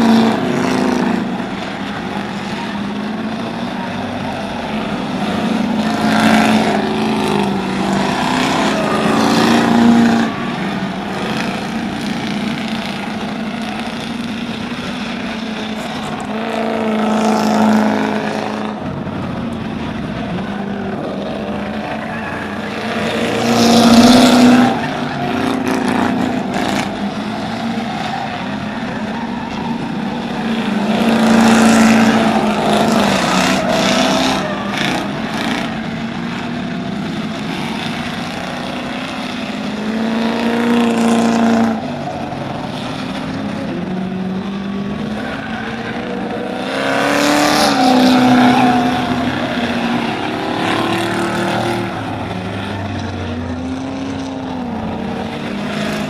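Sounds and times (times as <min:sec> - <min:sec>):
race car engines droning: 0:00.0 - 0:56.0
race cars passing by: 0:00.0 - 0:56.0.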